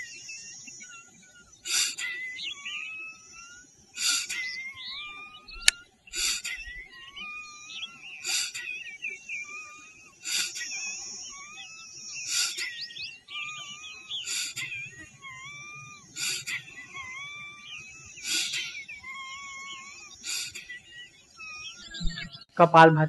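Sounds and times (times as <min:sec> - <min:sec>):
birds whistling: 0:00.0 - 0:23.0
sharp exhales through nose: 0:01.7 - 0:02.0, 0:06.1 - 0:06.6, 0:08.3 - 0:08.6, 0:10.3 - 0:10.6, 0:14.3 - 0:14.6.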